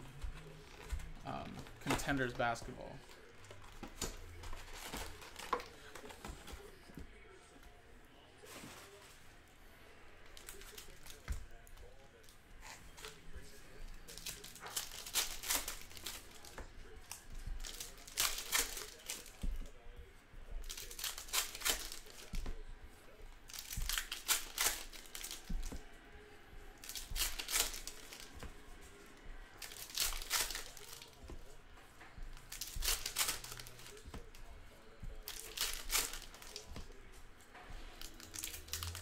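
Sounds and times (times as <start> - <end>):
card wrappers tearing and crinkling: 0.1 - 6.6, 10.3 - 11.4, 12.1 - 19.8, 20.5 - 22.7, 23.4 - 26.0, 26.8 - 31.6, 32.4 - 37.0, 38.0 - 39.0.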